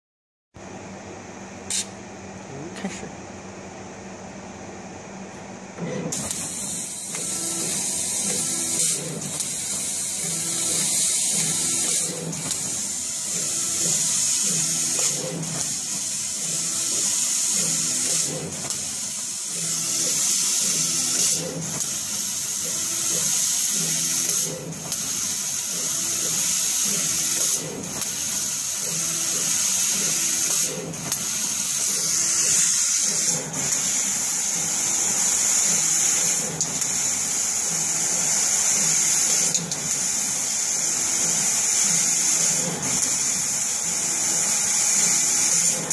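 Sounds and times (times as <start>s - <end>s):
air hissing through laser head: 1.7s - 1.9s, 6.1s - 45.8s
laser cutter click: 1.7s - 2.0s, 5.8s - 34.0s
stepper motor whines: 5.8s - 45.9s.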